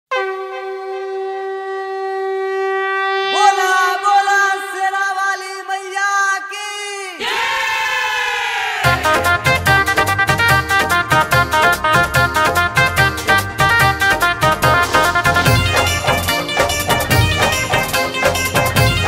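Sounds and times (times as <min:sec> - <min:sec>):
conch shell blasts: 0:00.1 - 0:04.2, 0:14.1 - 0:19.0.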